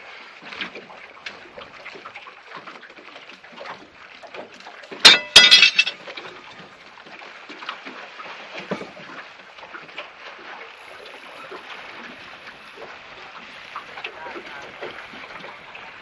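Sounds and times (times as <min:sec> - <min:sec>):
waves lapping against boat hull: 0:00.0 - 0:16.0
sharp metallic knocks: 0:05.0 - 0:06.0.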